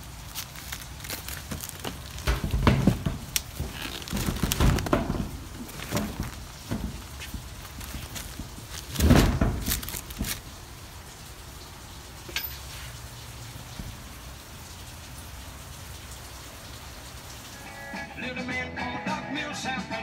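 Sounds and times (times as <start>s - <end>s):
rain falling: 0.0s - 18.3s
handling thump and rustling: 0.3s - 10.6s.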